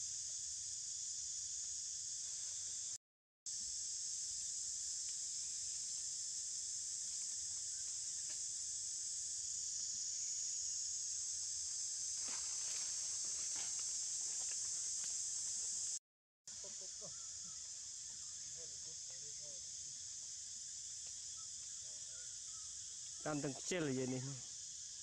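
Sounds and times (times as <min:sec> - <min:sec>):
insect chorus drone: 0:00.0 - 0:25.0
faint branch rustles: 0:11.6 - 0:15.9.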